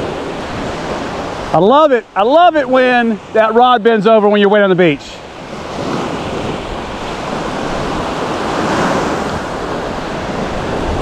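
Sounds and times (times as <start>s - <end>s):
waves breaking on beach: 0.0s - 11.0s
wind on microphone: 5.2s - 11.0s.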